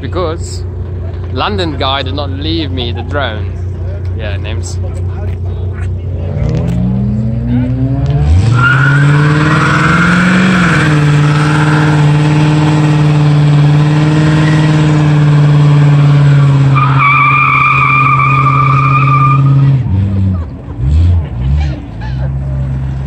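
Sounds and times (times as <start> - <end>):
car engine revving high: 6.1 - 21.9
wavering tyre squeal: 8.3 - 19.9.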